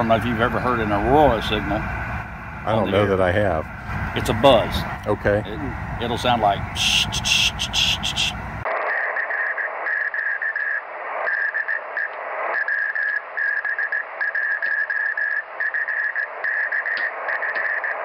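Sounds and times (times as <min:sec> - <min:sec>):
receiver hiss: 0:00.0 - 0:18.0
morse code tone: 0:06.3 - 0:08.6.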